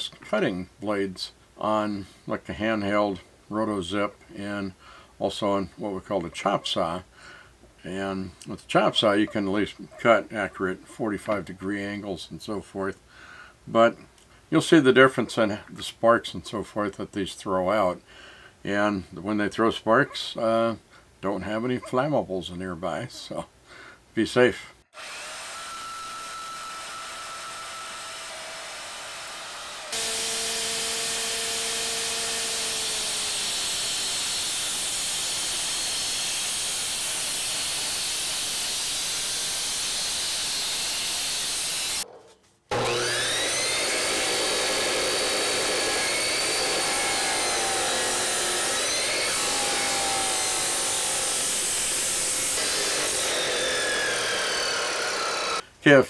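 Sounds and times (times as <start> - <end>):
chop saw cutting steel: 25.0 - 42.0, 42.7 - 55.6
cut-off disc grinding metal: 25.0 - 42.0, 42.7 - 55.6
quiet cutting sound: 42.7 - 55.6.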